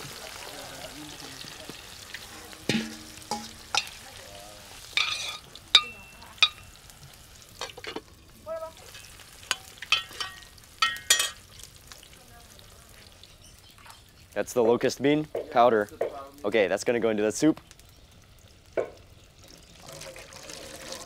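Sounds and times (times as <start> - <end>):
food sizzling: 0.0 - 21.0
metal spoon clanking in pot: 2.6 - 4.0, 4.9 - 6.7, 8.9 - 11.4.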